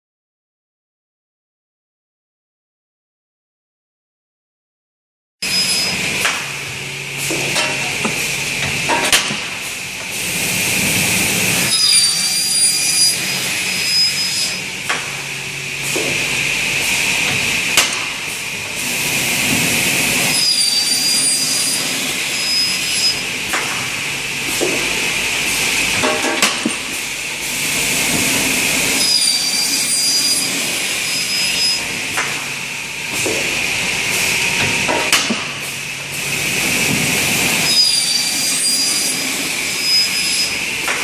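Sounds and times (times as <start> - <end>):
cutting saw high whine: 5.4 - 6.2, 10.2 - 17.8, 18.4 - 26.1, 27.1 - 35.0, 36.1 - 40.9
sharp machine knocks: 7.2 - 9.7, 17.2 - 18.3.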